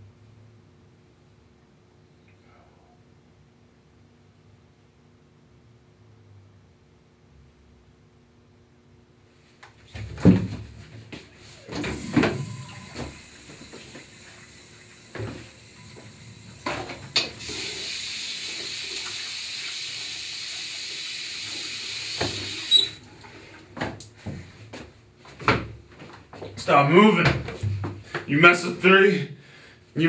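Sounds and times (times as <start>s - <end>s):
sink tap running: 11.8s - 23.0s.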